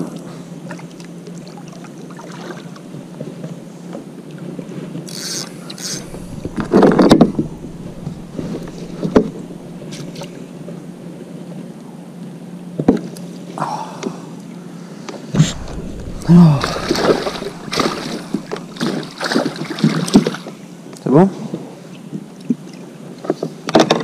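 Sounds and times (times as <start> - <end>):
paddle in water: 5.1 - 10.5, 16.6 - 20.2.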